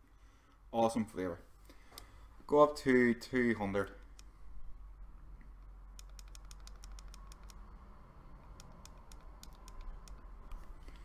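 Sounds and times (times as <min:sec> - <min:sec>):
plastic buttons clicking: 0:06.0 - 0:07.6, 0:08.5 - 0:10.3.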